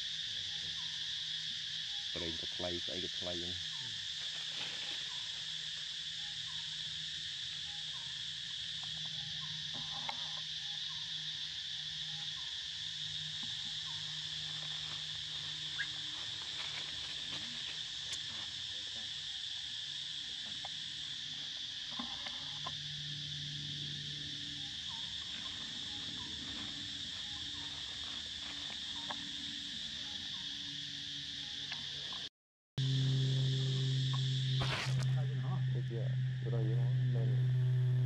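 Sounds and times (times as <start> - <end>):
insects buzzing: 0.0 - 38.0
low drone: 32.8 - 38.0.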